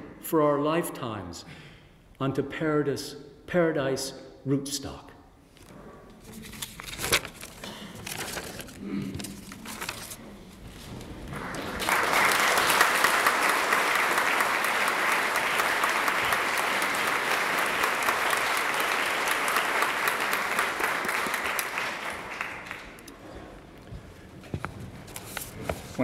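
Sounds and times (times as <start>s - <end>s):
audience applauding: 11.2s - 23.2s.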